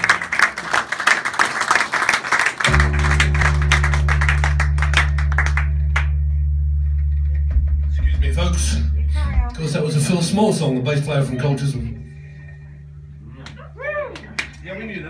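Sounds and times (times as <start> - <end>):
audience applause: 0.0 - 6.1
low drone of held tones: 2.7 - 15.0.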